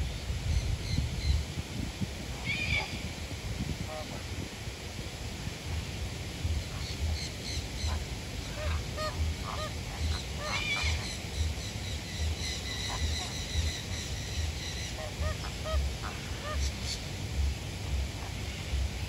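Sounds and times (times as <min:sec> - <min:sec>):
flamingos honking: 0:06.6 - 0:17.1.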